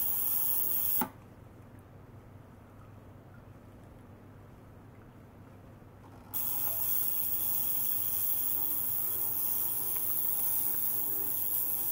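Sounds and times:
ultrasonic cleaner hissing: 6.4s - 11.9s.

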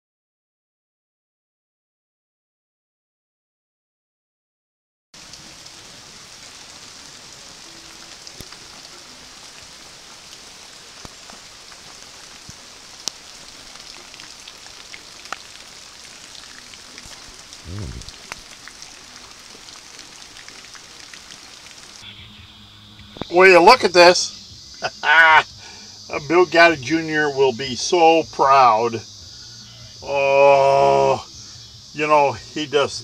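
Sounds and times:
steady rain hiss: 5.2s - 33.0s
sharp drip ticks: 11.0s - 22.0s
low rumble: 17.6s - 18.4s.

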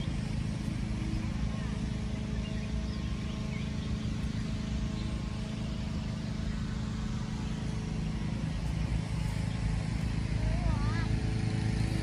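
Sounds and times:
motor traffic hum: 0.0s - 12.0s.

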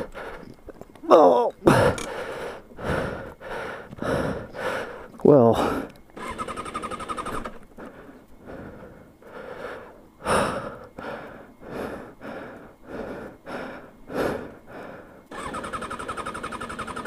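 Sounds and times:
person breathing hard in helmet: 0.0s - 0.6s, 1.6s - 6.0s, 7.4s - 15.7s
motorcycle starter cranking: 6.2s - 7.6s, 15.3s - 17.0s.

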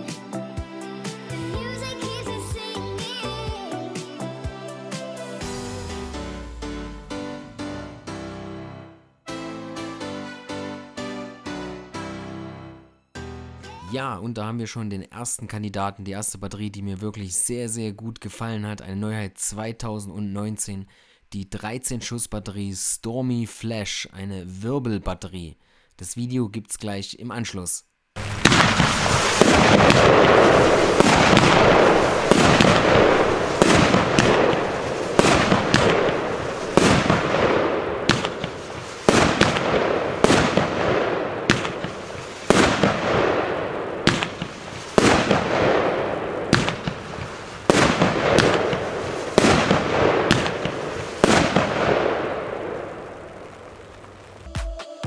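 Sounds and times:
fading hiss: 28.2s - 54.4s
firework battery shots: 28.2s - 54.4s.

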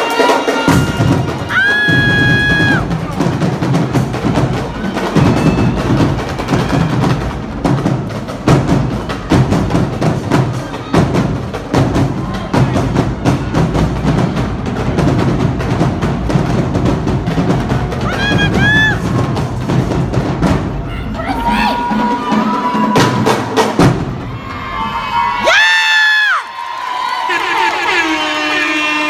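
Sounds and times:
crowd cheering: 0.0s - 3.4s, 4.0s - 7.7s, 17.4s - 19.4s, 20.7s - 29.0s
percussion-heavy music: 0.0s - 25.8s
crowd noise: 0.0s - 29.0s.

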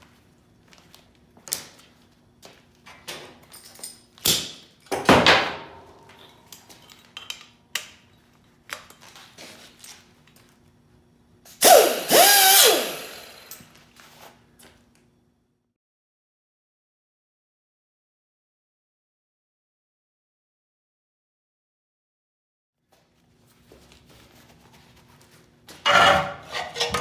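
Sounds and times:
tools clicking and knocking: 6.0s - 9.0s
wavering mechanical burst: 11.6s - 13.5s.

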